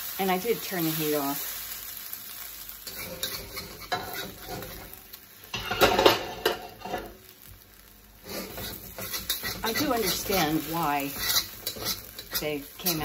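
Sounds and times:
metal spatula scraping a wok: 0:02.8 - 0:07.2, 0:08.2 - 0:13.0.

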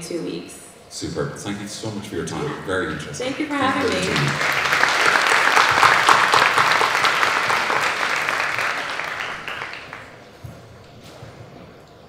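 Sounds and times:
audience applause: 0:03.2 - 0:10.4.

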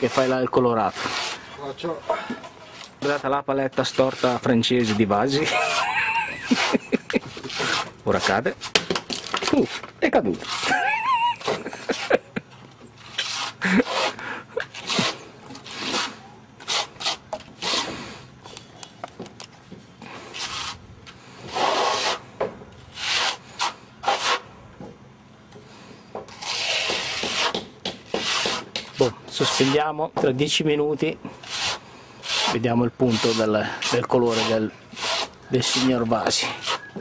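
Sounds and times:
trowel scraping render on wall: 0:00.0 - 0:01.8, 0:02.4 - 0:12.2, 0:12.9 - 0:18.0, 0:21.4 - 0:24.5, 0:26.3 - 0:30.0, 0:31.3 - 0:37.0.

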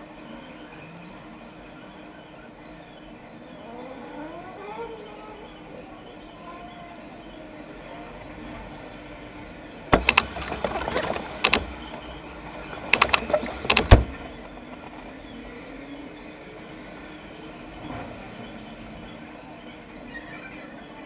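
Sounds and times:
sharp knocks and clicks: 0:09.9 - 0:15.1.

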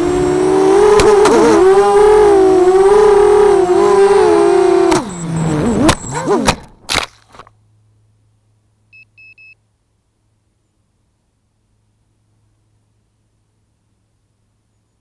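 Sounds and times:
drone motors whining: 0:00.0 - 0:06.9
short high beeps: 0:08.9 - 0:09.6.

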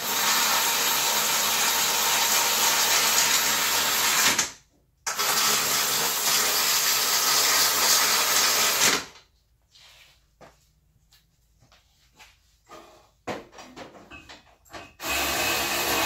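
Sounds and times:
power tool driving fasteners: 0:00.0 - 0:04.5, 0:05.1 - 0:09.2, 0:15.0 - 0:16.0.

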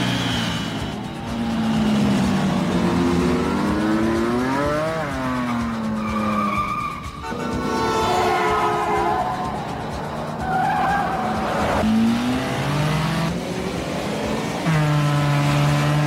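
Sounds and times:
motorcycle engines revving: 0:00.0 - 0:16.0
car tyre squeal: 0:04.9 - 0:11.8.

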